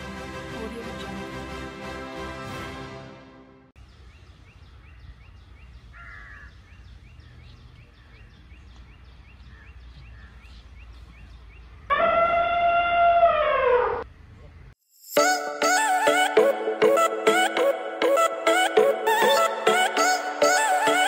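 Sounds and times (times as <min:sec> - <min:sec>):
theme music: 0:00.0 - 0:03.8, 0:15.2 - 0:21.0
low rumble of outdoor noise: 0:03.8 - 0:12.3, 0:13.2 - 0:14.8.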